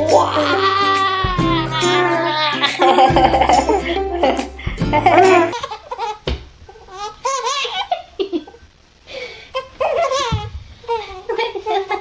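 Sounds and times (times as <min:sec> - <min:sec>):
babies laughing: 0:00.0 - 0:06.2, 0:09.8 - 0:12.0.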